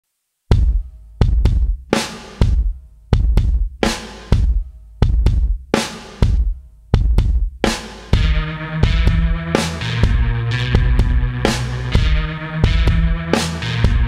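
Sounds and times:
drum-led beat with deep bass: 0:00.5 - 0:14.0
sustained bass notes: 0:08.2 - 0:14.0.

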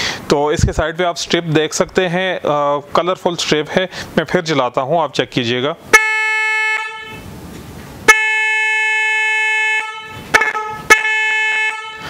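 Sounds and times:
electric horn blasts: 0:05.9 - 0:07.4, 0:08.0 - 0:12.0.

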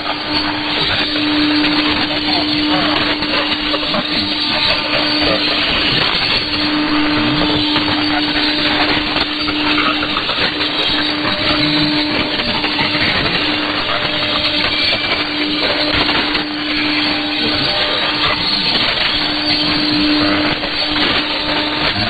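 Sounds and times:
radio static: 0:00.0 - 0:22.0
steady low whistle: 0:00.0 - 0:22.0.

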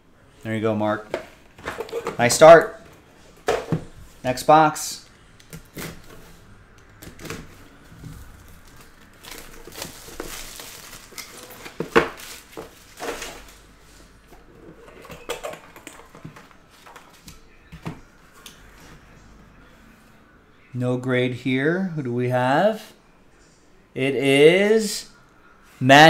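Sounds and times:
plastic shrink wrap crinkling: 0:08.2 - 0:13.6.

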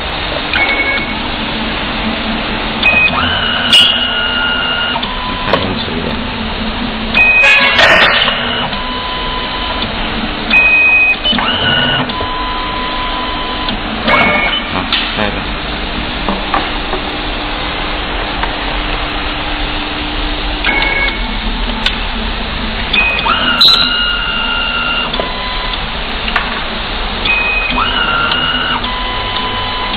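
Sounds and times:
machine motor whir: 0:00.4 - 0:15.4, 0:16.2 - 0:29.9
short motor tones: 0:02.8 - 0:05.9, 0:07.2 - 0:09.9, 0:10.5 - 0:15.4, 0:22.9 - 0:25.9, 0:27.2 - 0:29.9.

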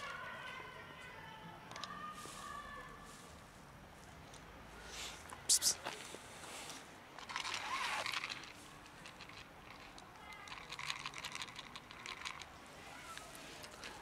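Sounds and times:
small clicks and crackles: 0:07.2 - 0:14.0.

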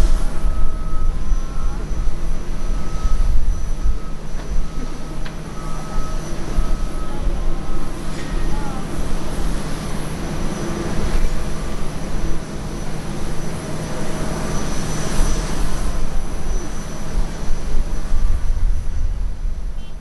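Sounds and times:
thin high engine tone: 0:00.0 - 0:19.2
jet engines rumbling: 0:00.0 - 0:20.0.

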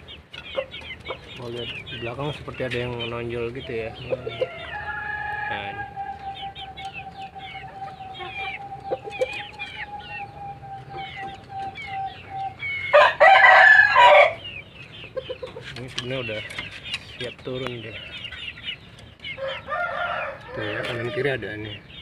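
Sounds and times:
long steady chicken note: 0:00.0 - 0:15.4, 0:19.3 - 0:21.7
chickens chirping: 0:00.0 - 0:22.0
rooster crowing: 0:04.0 - 0:11.2, 0:12.9 - 0:14.4, 0:19.4 - 0:21.4.

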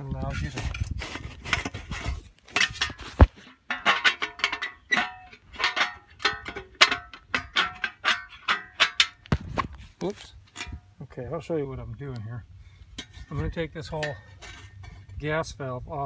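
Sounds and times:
metal parts clinking and rattling: 0:02.5 - 0:09.3.

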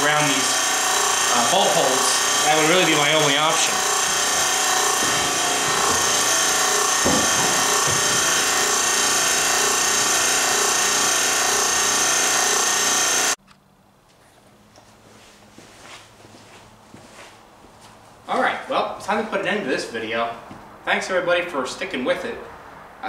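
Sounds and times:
machine humming with hiss: 0:00.0 - 0:13.4.

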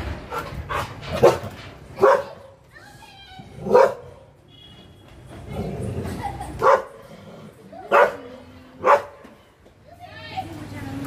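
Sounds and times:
dog barking: 0:00.3 - 0:02.6, 0:03.6 - 0:04.2, 0:06.6 - 0:07.0, 0:07.9 - 0:09.3.

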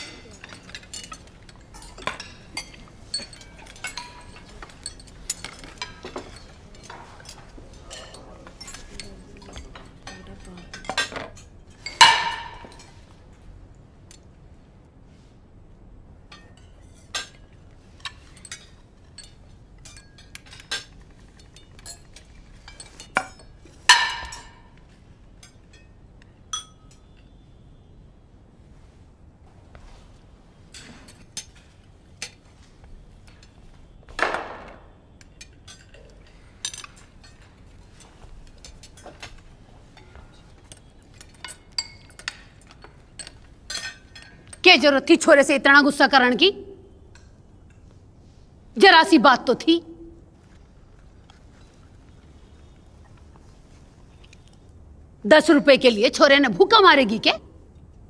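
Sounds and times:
cutlery clinking on plates: 0:00.0 - 0:13.2, 0:16.3 - 0:27.5, 0:30.6 - 0:44.6.

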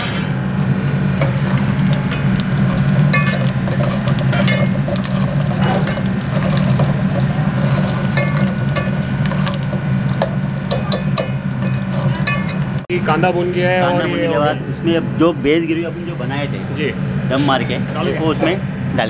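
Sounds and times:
ladle scraping a metal pot: 0:00.0 - 0:12.8
low hum: 0:00.0 - 0:19.0.

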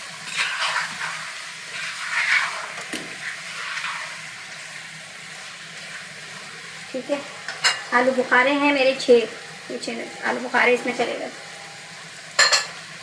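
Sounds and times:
food sizzling in a frying pan: 0:00.0 - 0:13.0
wooden spoon scraping a pan: 0:00.2 - 0:04.2.

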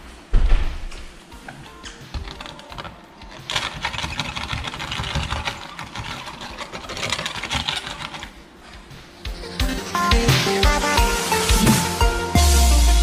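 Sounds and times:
bristle brush scrubbing on film: 0:03.3 - 0:08.4.

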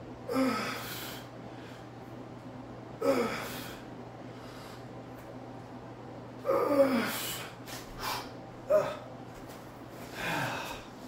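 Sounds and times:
man grunting and exhaling: 0:00.3 - 0:01.2, 0:03.0 - 0:03.8, 0:06.4 - 0:09.1, 0:10.1 - 0:10.9.

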